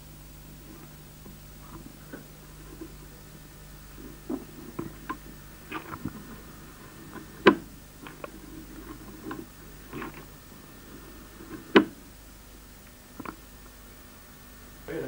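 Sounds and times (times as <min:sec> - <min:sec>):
faint low hum: 0:00.0 - 0:15.0
small clicks and ticks: 0:12.8 - 0:13.8.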